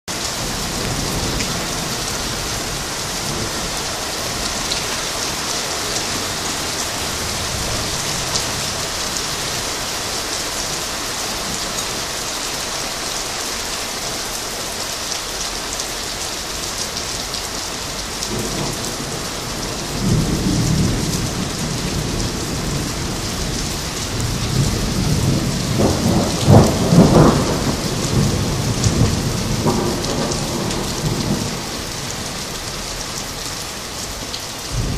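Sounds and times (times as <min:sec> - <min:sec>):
steady rain hissing: 0:00.2 - 0:34.9
thunder rumbling: 0:18.3 - 0:33.3, 0:34.7 - 0:34.9.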